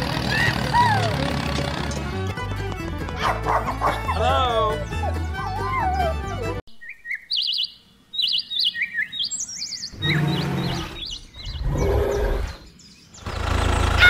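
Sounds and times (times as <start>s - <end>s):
birds chirping: 3.2s - 14.0s.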